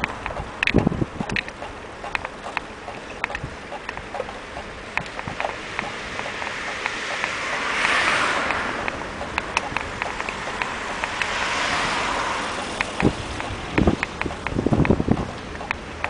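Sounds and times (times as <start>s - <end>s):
bicycle clicking and rattling: 0.0s - 16.0s
wind and rolling noise: 0.0s - 16.0s
rush of noise: 3.2s - 16.0s.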